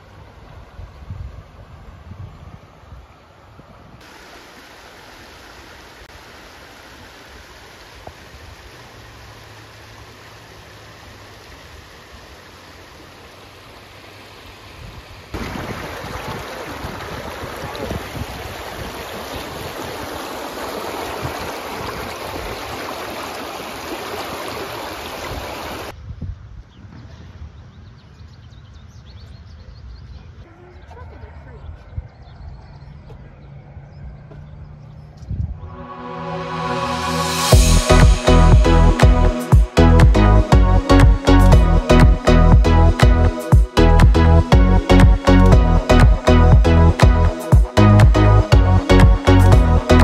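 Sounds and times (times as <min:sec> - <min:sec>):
wind rushing over microphone: 0:00.4 - 0:04.1, 0:14.8 - 0:22.9, 0:25.2 - 0:28.0, 0:31.6 - 0:39.4.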